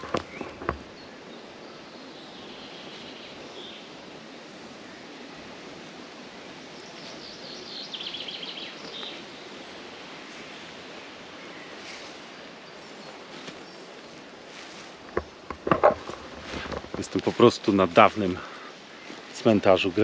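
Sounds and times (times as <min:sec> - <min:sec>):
wind through trees: 0:00.0 - 0:20.0.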